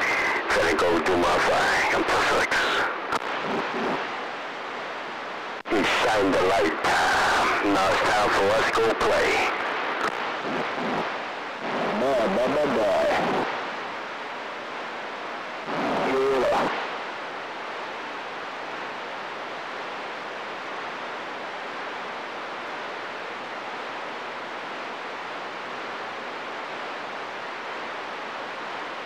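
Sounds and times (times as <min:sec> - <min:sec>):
voice over radio: 0:00.0 - 0:04.0, 0:05.7 - 0:13.5, 0:15.7 - 0:16.8
radio static hiss: 0:00.0 - 0:29.0.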